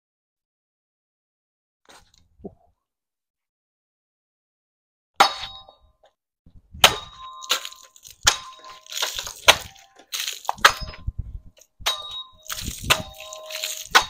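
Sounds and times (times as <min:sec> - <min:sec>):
sharp knocks with metallic ring: 0:05.2 - 0:05.9, 0:06.8 - 0:09.8, 0:10.6 - 0:11.1, 0:11.8 - 0:14.0.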